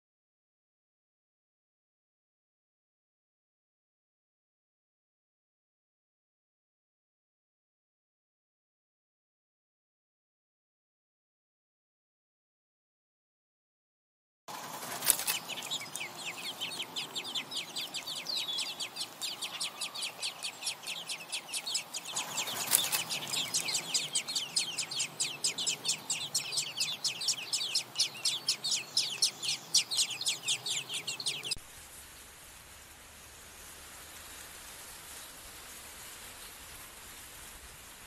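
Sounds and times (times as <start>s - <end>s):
nestlings chirping: 14.7s - 31.6s
sharp clicks: 22.5s - 24.0s.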